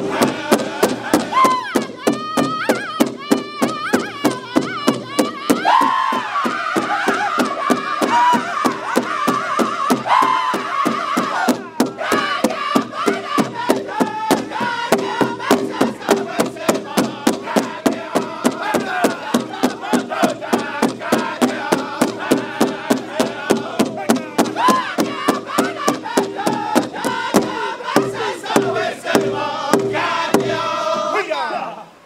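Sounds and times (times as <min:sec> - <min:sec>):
group singing in high-pitched unison: 0:00.0 - 0:32.0
drumsticks striking big drum: 0:06.8 - 0:30.7.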